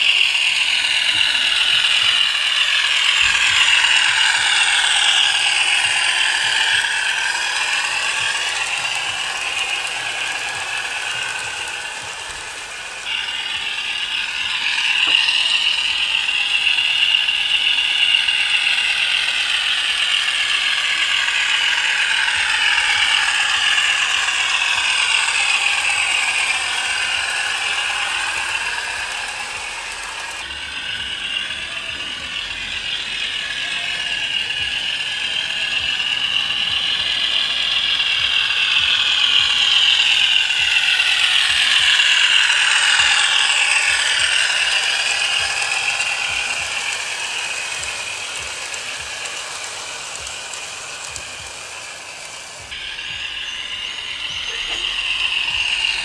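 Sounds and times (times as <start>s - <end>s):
diesel engine sound from speaker: 0.0s - 56.0s
model train motor clatter: 0.0s - 56.0s.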